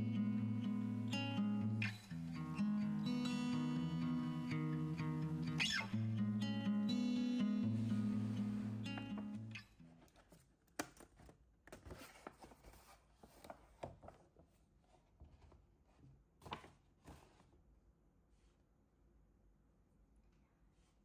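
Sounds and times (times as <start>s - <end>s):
paper bag and box rustling: 7.7s - 14.6s.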